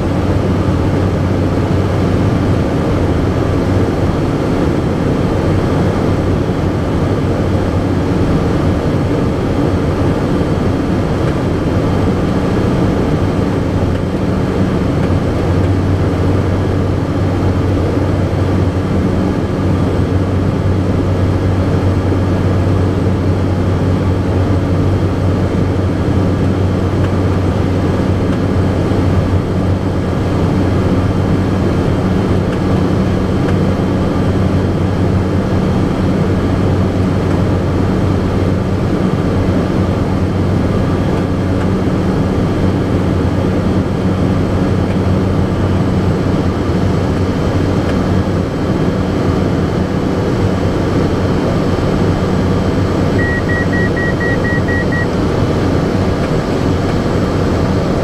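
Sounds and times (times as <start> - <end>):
propeller engine drone: 0.0 - 58.0
short electronic beeps: 53.2 - 55.2.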